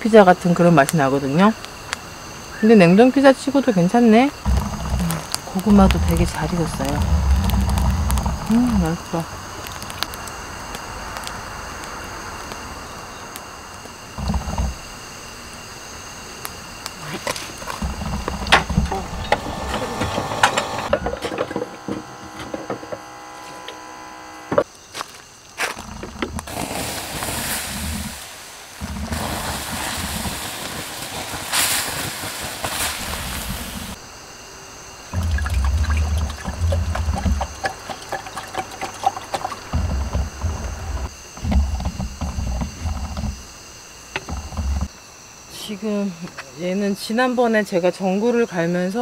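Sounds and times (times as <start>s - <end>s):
embers hissing and sizzling: 0.0s - 47.1s
insects chirring: 0.0s - 49.0s
campfire crackling and popping: 4.4s - 15.0s, 25.8s - 34.0s, 35.1s - 43.5s.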